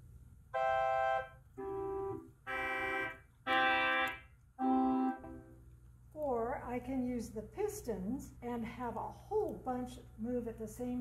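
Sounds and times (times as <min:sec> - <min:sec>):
pipe organ held notes: 0:00.5 - 0:05.5.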